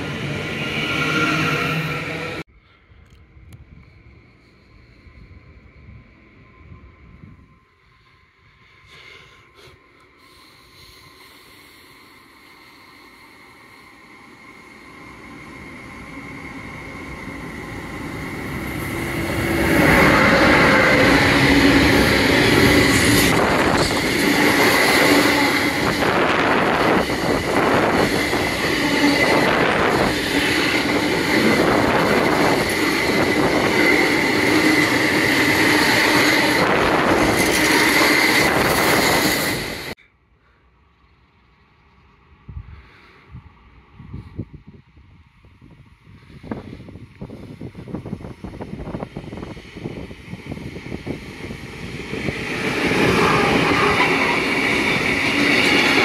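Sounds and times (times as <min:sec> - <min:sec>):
freight train passing: 0:00.0 - 0:40.0, 0:40.6 - 0:56.0.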